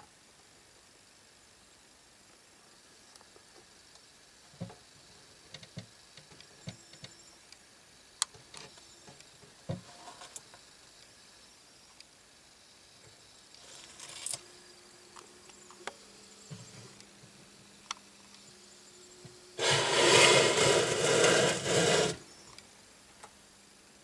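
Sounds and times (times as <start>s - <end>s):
faint steady hum: 0.0s - 24.0s
loud rubbing scraping noise: 19.6s - 22.3s.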